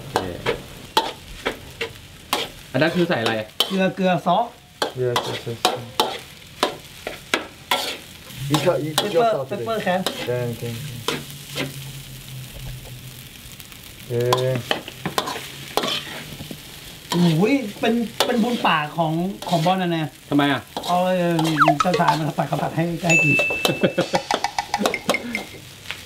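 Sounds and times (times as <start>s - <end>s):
light sizzle: 0.0s - 26.0s
spatula scraping and knocking wok: 0.1s - 4.0s, 4.8s - 11.8s, 14.3s - 19.8s, 20.7s - 22.8s.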